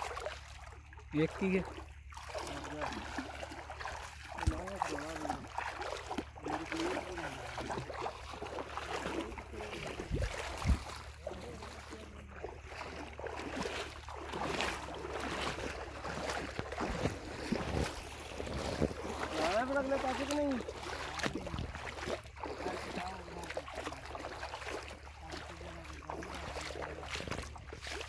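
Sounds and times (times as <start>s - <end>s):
water splashing around wading legs: 0.0s - 28.0s
wind rumbling on microphone: 9.7s - 11.2s, 16.5s - 19.4s, 21.1s - 22.2s.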